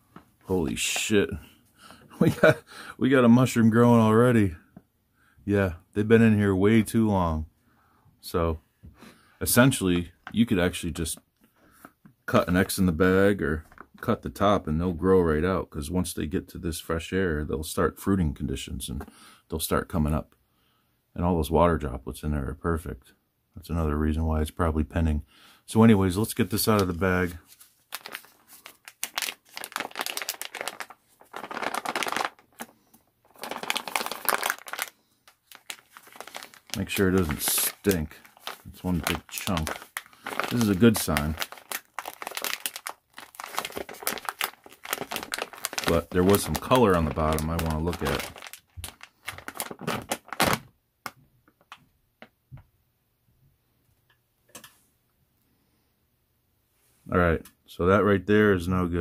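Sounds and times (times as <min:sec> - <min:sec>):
plastic pouch crinkling: 0:26.4 - 0:51.8.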